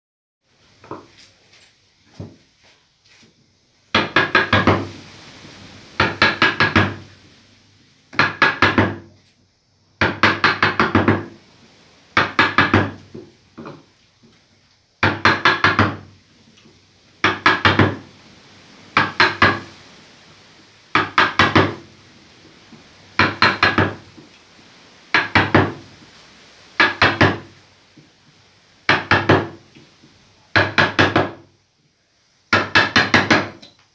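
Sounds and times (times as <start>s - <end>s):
mallet striking a gouge: 23.2s - 24.0s.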